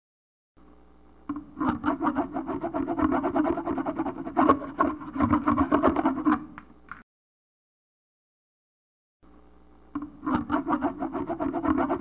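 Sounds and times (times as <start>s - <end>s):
pen scratching on paper: 1.6s - 6.5s, 10.2s - 12.0s.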